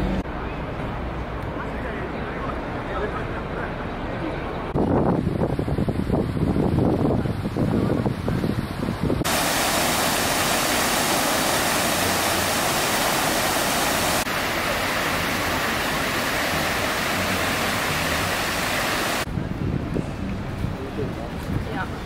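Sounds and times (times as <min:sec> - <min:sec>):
fountain spray splashing: 0:09.2 - 0:19.3.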